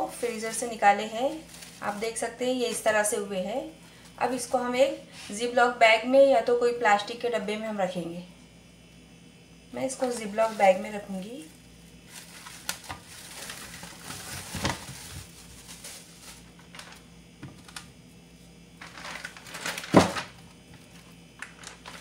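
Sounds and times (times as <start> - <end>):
plastic bag crinkling: 0.5 - 2.8, 10.0 - 18.0, 18.8 - 22.0.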